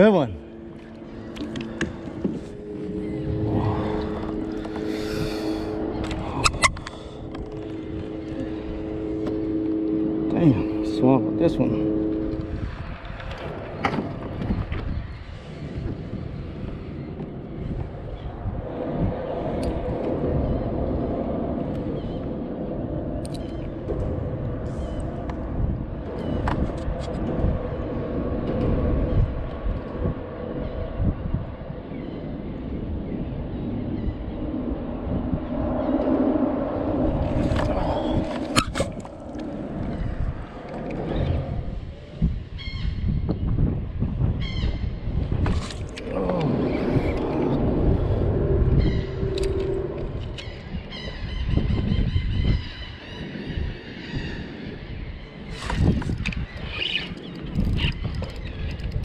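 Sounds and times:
low rumble of road traffic: 0.0 - 59.0
steady engine drone: 0.0 - 59.0.

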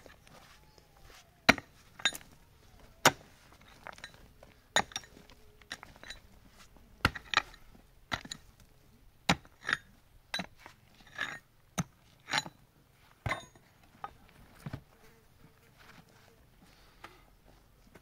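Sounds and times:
pickaxe striking rocky earth: 1.5 - 6.2, 7.0 - 8.6, 9.2 - 12.6, 13.2 - 13.6.

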